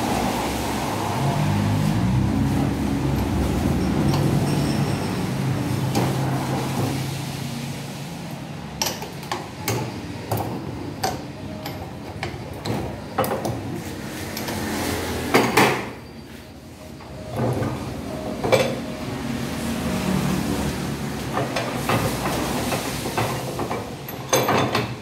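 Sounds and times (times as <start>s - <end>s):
metal tools clinking on pump: 3.1s - 5.5s.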